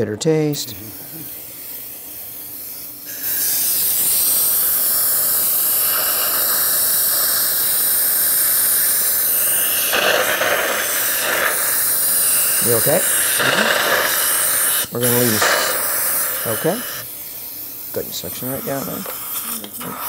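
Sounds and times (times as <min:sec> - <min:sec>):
dental air-water syringe spraying: 0:00.6 - 0:20.0
suction hissing: 0:00.7 - 0:20.0.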